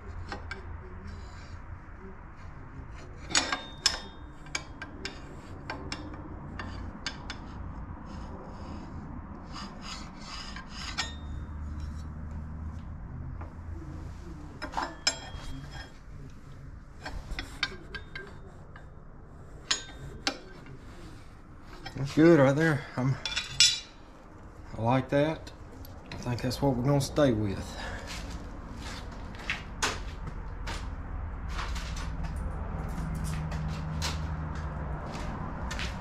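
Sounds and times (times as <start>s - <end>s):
steady rubbing: 0.0s - 22.8s
metal clicks and clinks: 3.3s - 4.9s, 14.6s - 15.9s, 19.7s - 20.5s.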